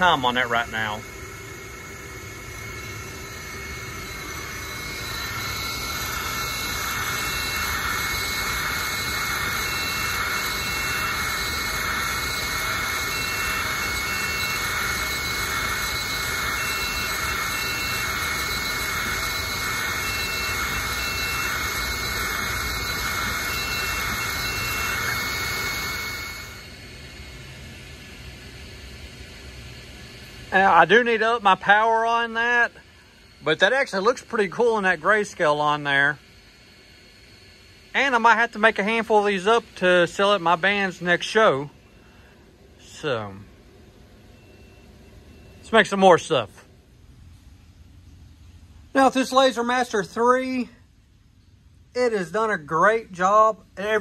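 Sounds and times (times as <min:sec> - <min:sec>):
stepper motor whines: 0:00.0 - 0:46.4
laser engraver machine noise: 0:00.0 - 0:46.5.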